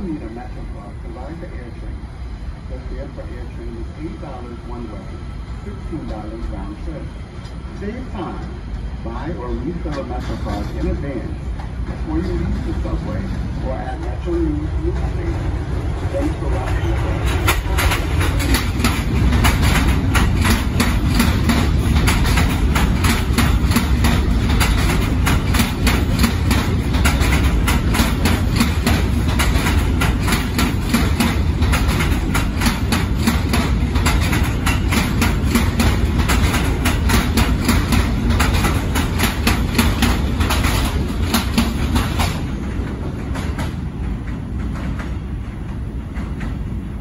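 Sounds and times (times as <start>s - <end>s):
low train rumble: 0.0s - 47.0s
train wheels clattering: 9.4s - 47.0s.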